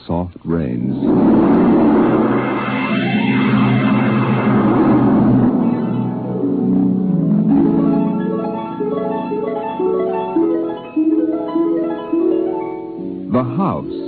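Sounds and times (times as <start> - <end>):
plucked harp-like notes: 5.5 - 13.1.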